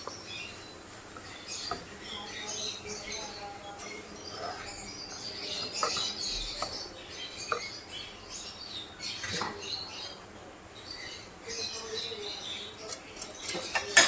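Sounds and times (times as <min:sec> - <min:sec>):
spoon stirring food in pan: 0:00.0 - 0:09.7.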